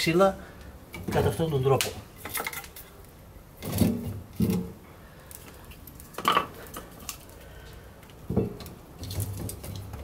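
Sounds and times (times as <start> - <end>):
firewood logs knocking together: 6.1 - 7.2, 8.1 - 10.0.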